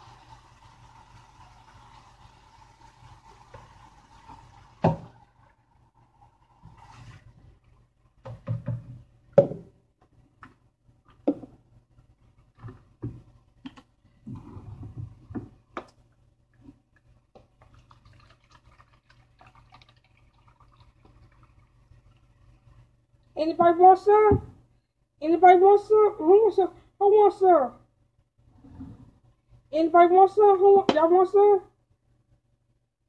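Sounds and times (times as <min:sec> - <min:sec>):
plastic jug and cup knocking: 0:08.2 - 0:09.7
juice trickling into cup: 0:16.9 - 0:22.9.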